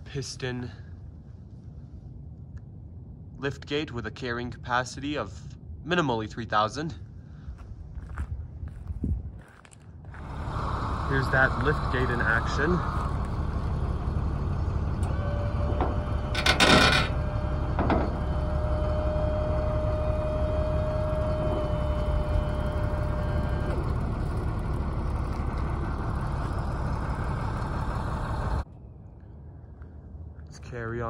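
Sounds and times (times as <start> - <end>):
hydraulic pump motor whining: 10.2 - 28.6
metal clanks: 14.6 - 18.7.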